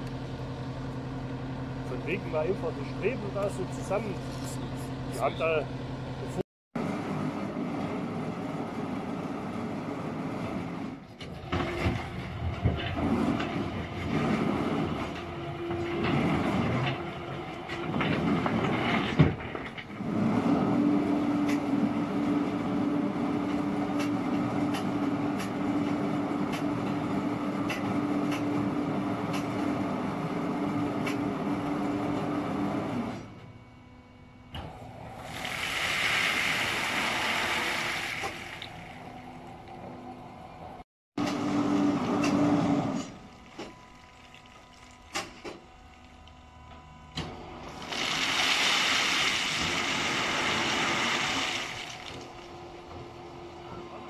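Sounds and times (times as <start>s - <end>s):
crane engine humming: 38.4s - 40.8s, 52.2s - 54.0s
coal pouring onto heap: 47.7s - 52.4s.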